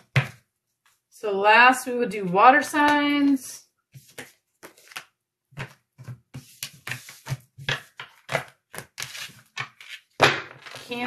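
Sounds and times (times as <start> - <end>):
cards being shuffled: 4.0 - 10.8.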